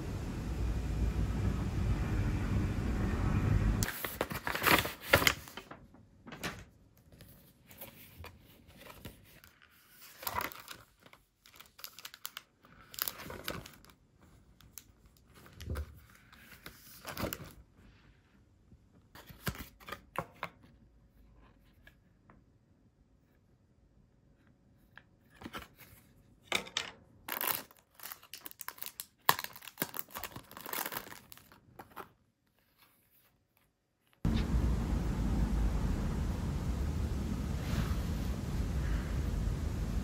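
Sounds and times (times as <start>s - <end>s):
steady noise: 0.0s - 3.9s, 34.3s - 40.0s
packaging crinkling and tearing: 3.8s - 6.6s, 8.9s - 14.0s, 27.3s - 32.2s.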